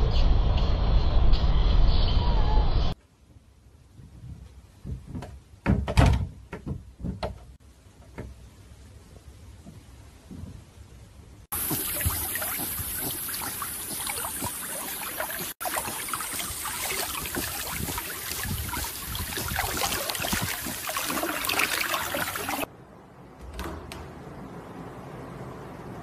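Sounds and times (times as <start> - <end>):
water splashing and sloshing: 11.5 - 22.7.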